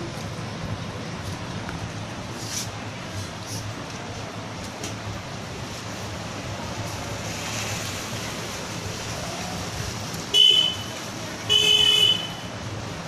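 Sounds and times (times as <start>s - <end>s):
low traffic noise: 0.0s - 13.0s
vehicle horn honking: 10.3s - 12.5s.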